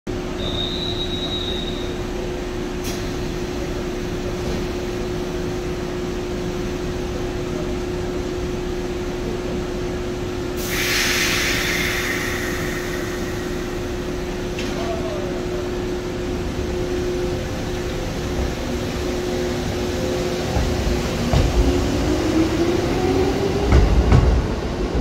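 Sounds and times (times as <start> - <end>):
electric train humming: 1.2 - 25.0
air hiss: 10.6 - 14.2.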